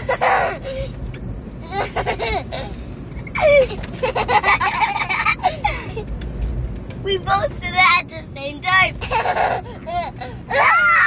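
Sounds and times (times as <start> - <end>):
car cabin rumble: 0.0 - 11.0
boys laughing: 1.6 - 6.1, 9.0 - 10.8.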